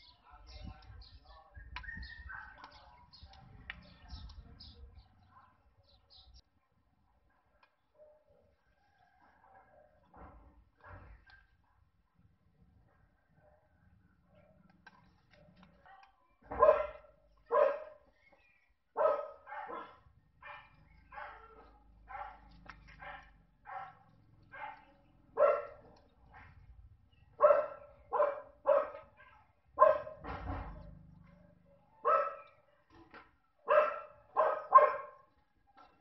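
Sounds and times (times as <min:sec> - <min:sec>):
dog barking: 0:01.2 - 0:03.5, 0:07.9 - 0:12.2, 0:12.8 - 0:13.8, 0:15.4 - 0:18.1, 0:19.0 - 0:26.7, 0:27.3 - 0:32.9, 0:33.6 - 0:35.4.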